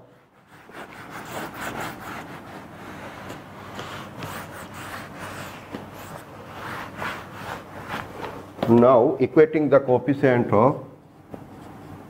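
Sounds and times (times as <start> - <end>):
marker writing on whiteboard: 0.4 - 8.7.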